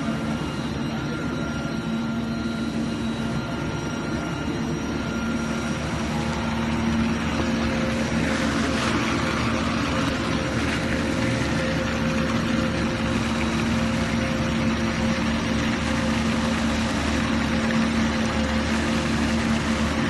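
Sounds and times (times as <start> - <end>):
machine humming and whining: 0.0 - 20.0
noisy whirr: 0.0 - 20.0.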